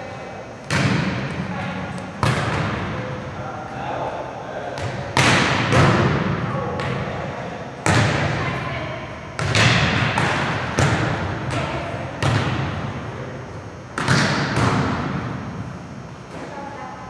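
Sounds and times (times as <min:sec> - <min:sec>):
volleyball slaps in echoing gym: 0:00.0 - 0:16.6.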